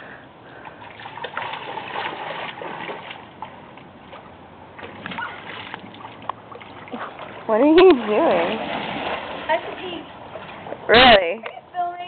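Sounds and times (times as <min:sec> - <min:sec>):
water splashing and sloshing: 0:00.0 - 0:12.0.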